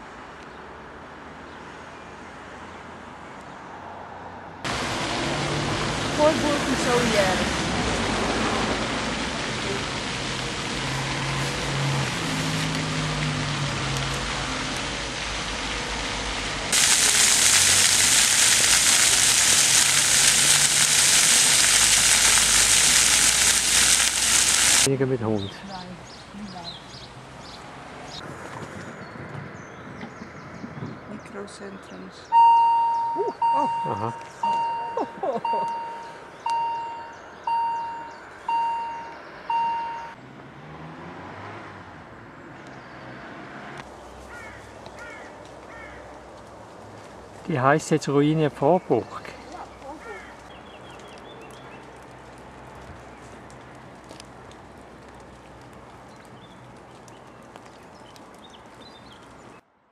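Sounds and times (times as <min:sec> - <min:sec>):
fountain jets splashing: 0:04.7 - 0:28.0, 0:32.4 - 0:40.1, 0:43.9 - 0:59.6
bird chirping: 0:29.0 - 0:40.2
level crossing bell ringing: 0:32.4 - 0:40.2.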